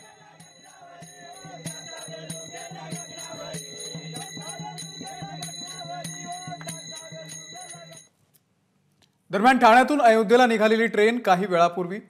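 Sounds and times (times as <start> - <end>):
men singing: 0.0 - 8.0
small hand cymbals ringing: 0.0 - 8.1.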